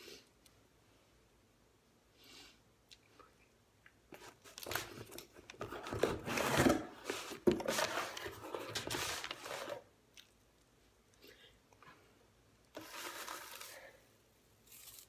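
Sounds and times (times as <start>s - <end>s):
paper and packaging rustling: 4.2s - 9.9s, 12.8s - 14.0s.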